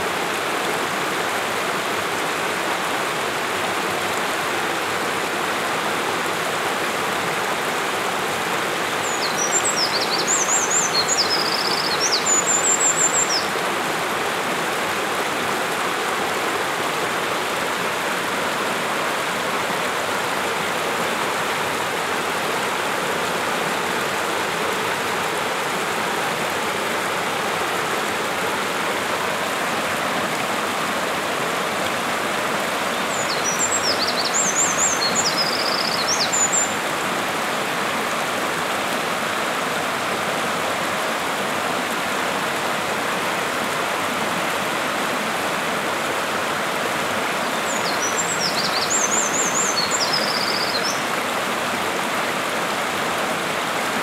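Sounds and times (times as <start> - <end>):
mountain stream rushing: 0.0 - 54.0
wren singing high trills: 9.0 - 13.5, 33.1 - 36.8, 47.6 - 51.0.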